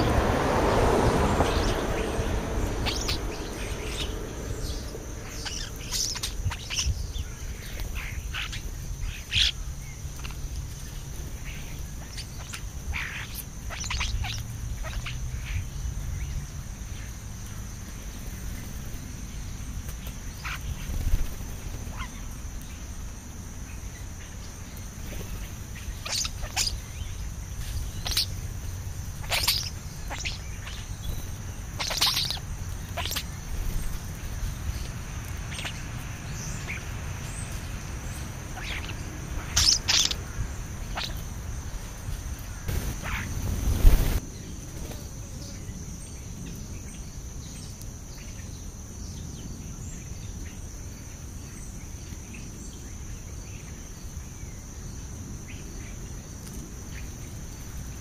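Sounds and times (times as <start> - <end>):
low rumble: 0.0 - 7.2
starlings chirping and calling: 0.0 - 22.9, 23.6 - 44.2.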